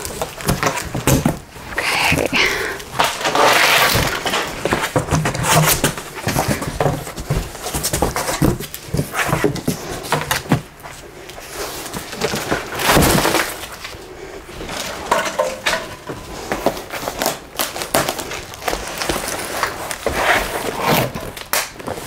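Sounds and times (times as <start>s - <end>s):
cardboard crumpling: 0.0s - 15.0s, 16.1s - 22.0s
boxes knocking and scraping: 0.0s - 22.0s
cardboard flaps rustling: 3.0s - 14.0s, 16.0s - 22.0s.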